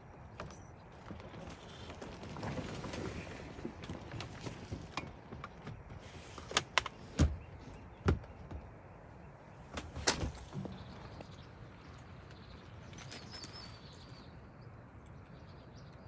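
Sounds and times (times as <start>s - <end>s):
sharp knocks and clunks: 3.8s - 8.8s.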